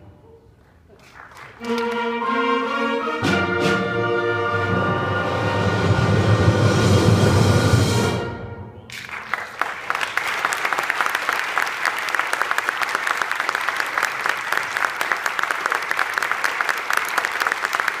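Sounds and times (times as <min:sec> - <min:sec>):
audience applauding: 0:00.6 - 0:02.0, 0:08.9 - 0:18.0.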